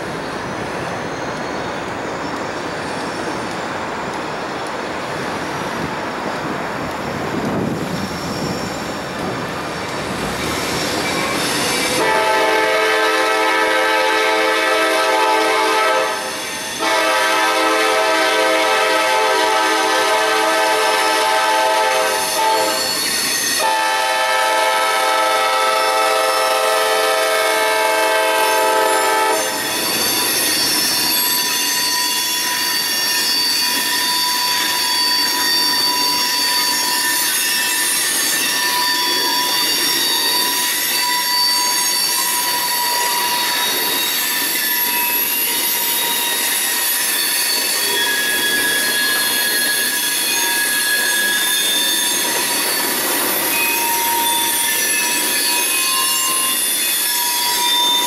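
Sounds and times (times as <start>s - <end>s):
wheel squeal on rails: 0.0s - 3.8s, 7.0s - 58.0s
train rolling past: 0.0s - 58.0s
locomotive horn blasts: 11.9s - 23.0s, 23.6s - 29.6s.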